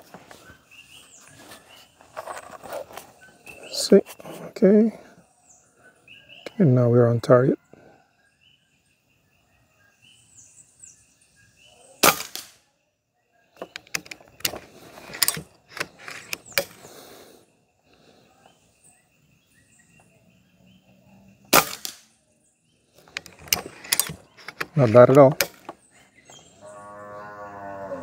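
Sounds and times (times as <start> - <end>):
air rifle shots: 12.0 - 12.6, 21.5 - 22.0
rifle lever clicks and clacks: 13.6 - 16.8, 23.1 - 25.7.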